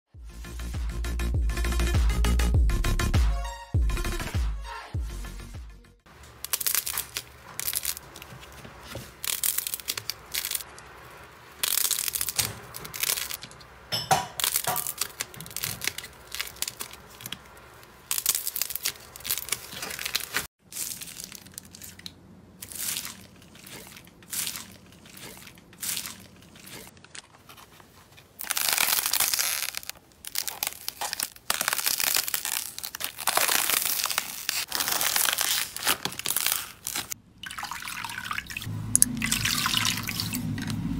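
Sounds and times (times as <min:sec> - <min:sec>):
slime squelching and crackling: 0:06.2 - 0:13.7, 0:14.4 - 0:37.2.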